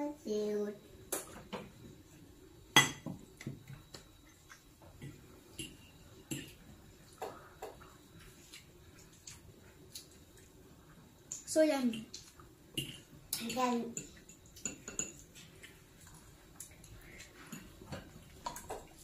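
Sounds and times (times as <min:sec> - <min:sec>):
forks clinking on ceramic plates: 0:12.8 - 0:15.2.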